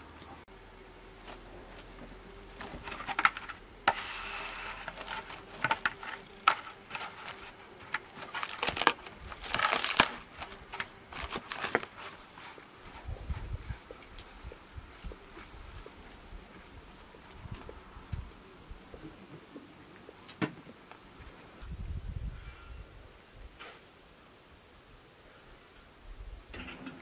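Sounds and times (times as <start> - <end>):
cling film crinkling: 2.5 - 13.0.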